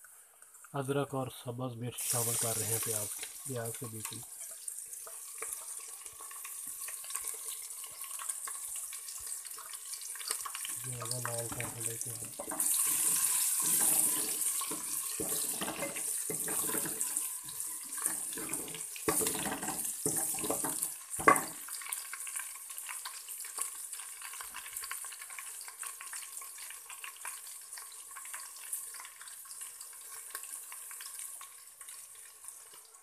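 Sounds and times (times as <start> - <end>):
onions sizzling in oil: 1.9 - 33.0
ladle scraping and knocking pot: 11.5 - 17.2, 18.0 - 21.5.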